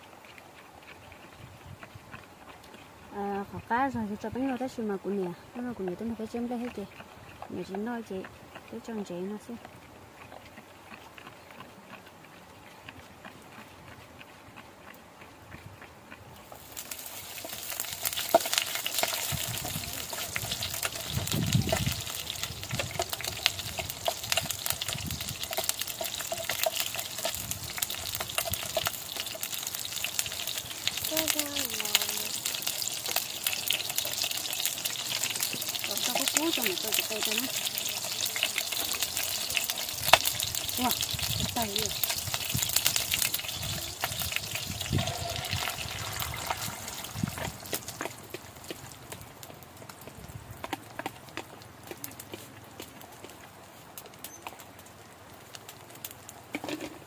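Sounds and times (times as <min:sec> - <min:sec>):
fire crackling: 0:16.3 - 0:57.0
broth bubbling: 0:16.5 - 0:49.2
liquid gushing: 0:29.9 - 0:48.0.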